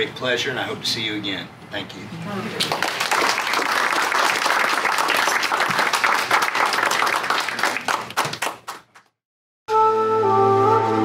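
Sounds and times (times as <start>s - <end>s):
audience applauding: 2.6s - 9.1s.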